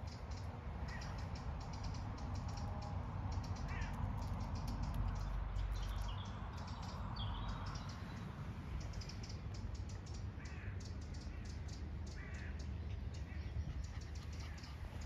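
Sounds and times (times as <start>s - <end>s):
crow cawing: 3.7s - 4.0s, 10.4s - 10.8s, 12.1s - 12.6s.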